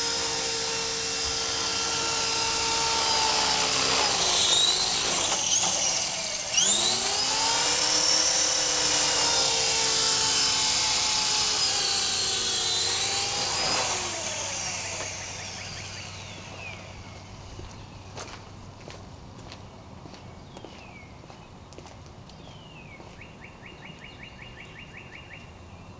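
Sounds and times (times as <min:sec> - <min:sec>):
rc helicopter rotor whine: 0:00.0 - 0:18.2.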